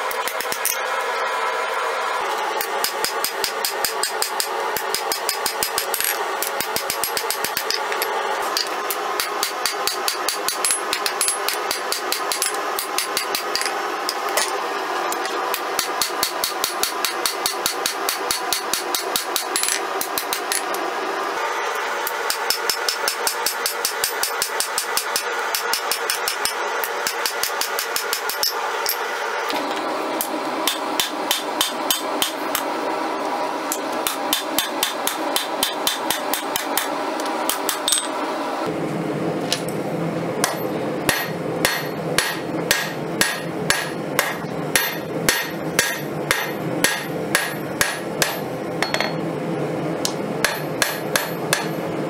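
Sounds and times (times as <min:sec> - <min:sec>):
hammer ringing on anvil: 0:40.4 - 0:49.2.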